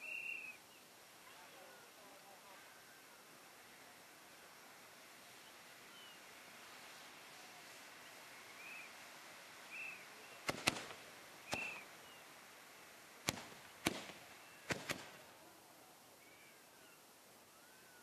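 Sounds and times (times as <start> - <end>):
firework hissing: 9.7 - 12.2, 13.2 - 15.4
firework bangs: 10.4 - 11.9, 13.2 - 15.4.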